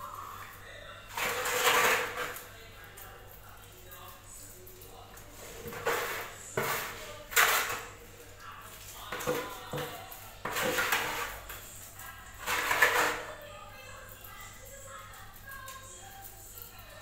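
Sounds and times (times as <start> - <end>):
trowel scraping wet mortar: 1.1 - 2.4, 5.4 - 8.0, 9.2 - 11.6, 12.4 - 13.3.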